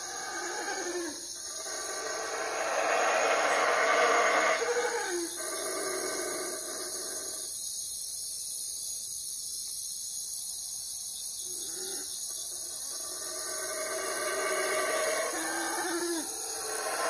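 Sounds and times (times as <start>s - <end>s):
long drawn-out pitched call: 0.0s - 7.5s, 11.5s - 17.0s
high-pitched hiss: 0.0s - 17.0s.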